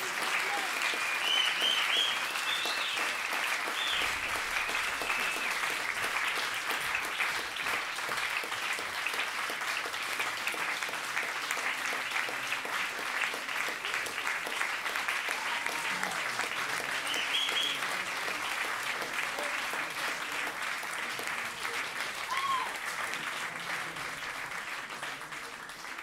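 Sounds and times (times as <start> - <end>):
audience applauding: 0.0 - 26.0
high calls from crowd: 22.2 - 22.8.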